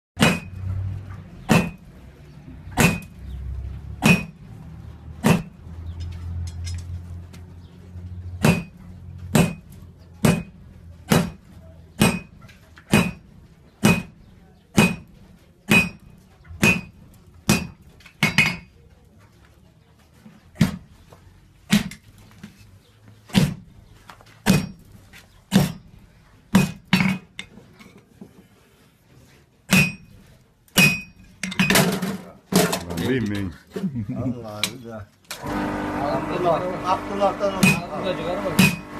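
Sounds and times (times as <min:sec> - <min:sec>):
sledgehammer ringing on anvil: 0:29.7 - 0:30.1, 0:38.6 - 0:38.9.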